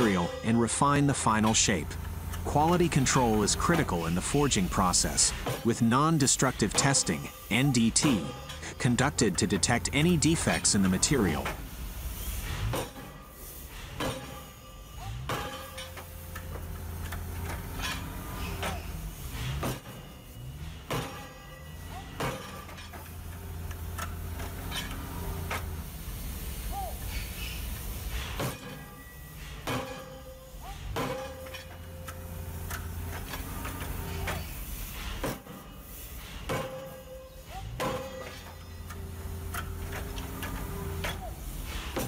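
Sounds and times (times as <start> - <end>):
machine hum: 0.0 - 12.8, 29.0 - 35.3
forging hammer striking hot steel: 0.0 - 42.0
low machinery hum: 0.0 - 42.0.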